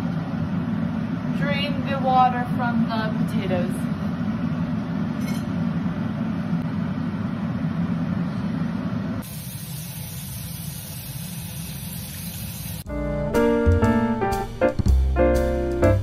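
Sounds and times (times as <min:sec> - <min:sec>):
faucet running into steel sink: 0:09.3 - 0:12.8.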